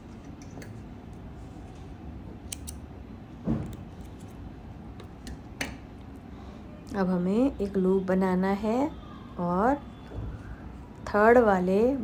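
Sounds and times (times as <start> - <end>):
thread snips clicking: 2.5 - 2.8.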